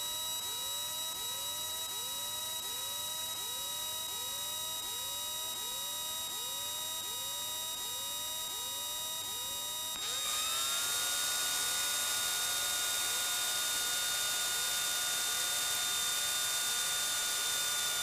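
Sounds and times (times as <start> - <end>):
hydraulic pump whine: 10.0 - 16.3.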